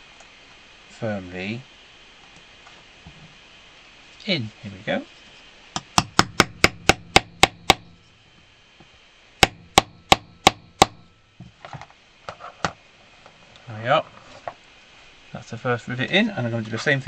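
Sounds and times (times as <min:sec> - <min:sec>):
hammer tapping rivet rod: 0:05.8 - 0:08.0, 0:09.4 - 0:11.0.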